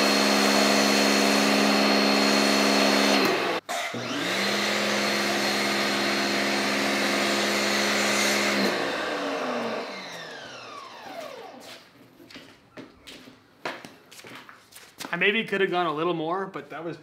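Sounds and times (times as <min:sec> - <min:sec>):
pressure washer motor whine: 0:00.0 - 0:11.8.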